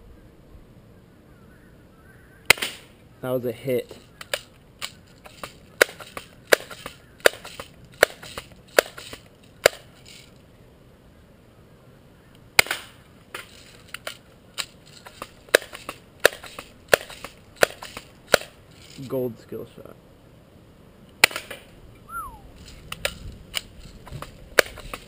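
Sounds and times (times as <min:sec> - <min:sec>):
bb gun cocking and firing: 0:02.5 - 0:02.9, 0:04.2 - 0:09.9, 0:12.6 - 0:14.7, 0:15.5 - 0:18.6, 0:21.2 - 0:21.7.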